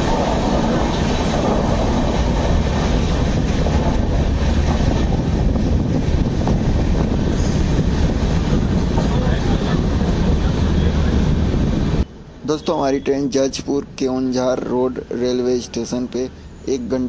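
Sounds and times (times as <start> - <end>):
train coaches rattling: 0.0 - 17.0
train rumbling on rails: 0.0 - 17.0.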